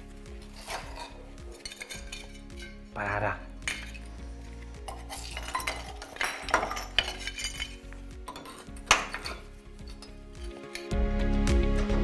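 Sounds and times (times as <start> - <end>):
brick clinking and knocking: 0.6 - 2.8, 3.6 - 4.1, 4.8 - 10.9.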